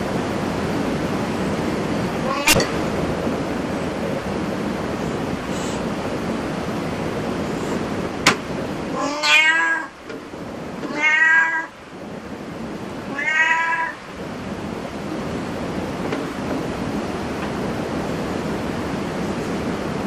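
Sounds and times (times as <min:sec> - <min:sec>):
background hiss: 0:00.0 - 0:10.1
cat meowing: 0:02.2 - 0:02.7, 0:08.9 - 0:10.0, 0:10.9 - 0:11.8, 0:13.1 - 0:14.0.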